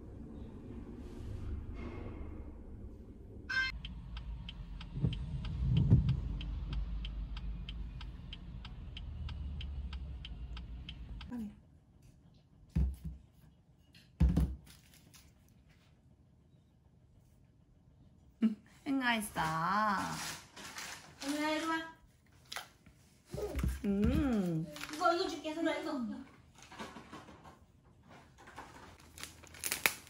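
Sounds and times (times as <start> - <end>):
low car cabin hum: 3.7 - 11.3
turn signal ticking: 3.7 - 11.3.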